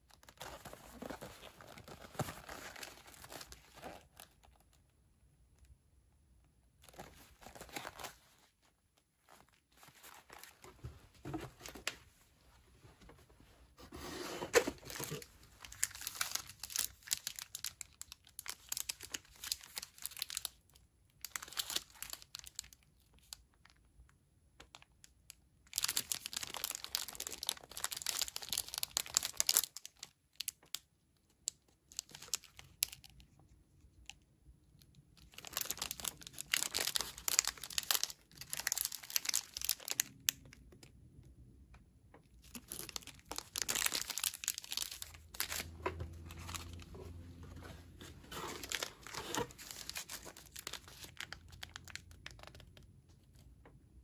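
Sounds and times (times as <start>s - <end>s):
plastic wrapper crinkling: 0.0s - 4.8s, 6.8s - 12.0s, 14.5s - 23.8s, 24.7s - 30.9s, 31.5s - 34.2s, 35.2s - 40.8s, 42.4s - 53.4s.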